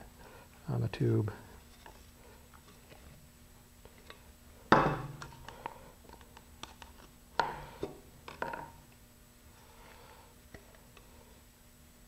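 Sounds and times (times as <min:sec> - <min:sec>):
stir stick scraping and tapping: 0:01.6 - 0:03.2.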